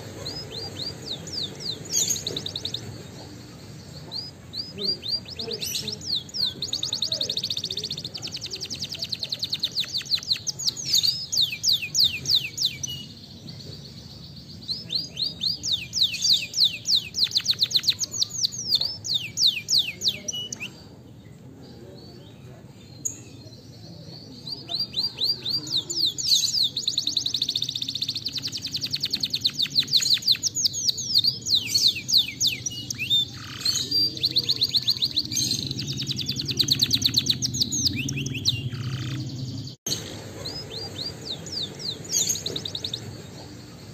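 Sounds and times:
canary singing trills: 0.0s - 43.9s.

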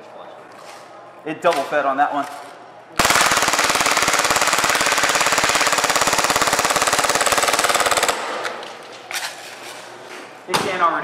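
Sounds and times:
airsoft pistol full-auto burst: 3.0s - 8.5s.

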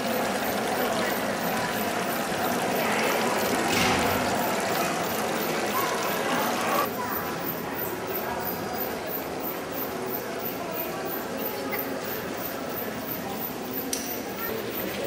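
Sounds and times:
fountain water splashing into pond: 0.0s - 6.9s.

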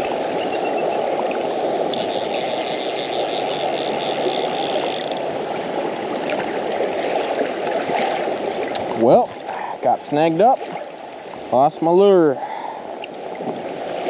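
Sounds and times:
fast river rushing: 0.0s - 14.0s
fly reel ratchet clicking: 1.9s - 5.4s.

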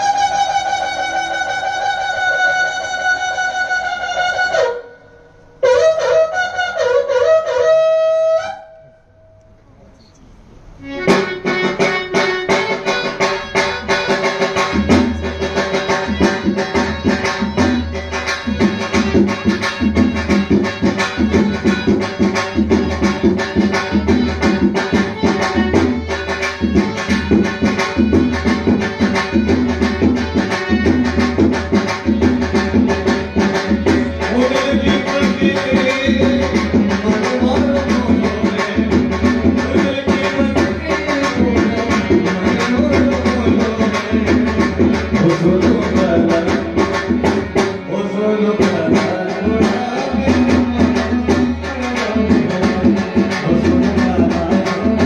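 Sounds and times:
reedy wind instrument folk music: 0.0s - 9.2s, 10.8s - 55.0s
sustained melodic accompaniment: 10.4s - 55.0s
barrel hand drum rhythm: 11.0s - 55.0s.

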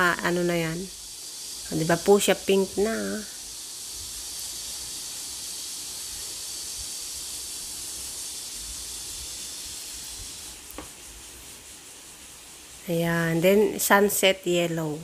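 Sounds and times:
steady high hiss: 0.0s - 15.0s.

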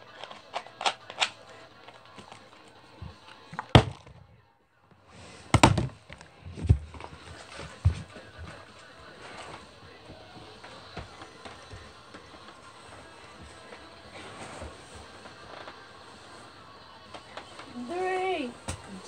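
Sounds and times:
bottle landing on carpet: 3.6s - 4.2s.

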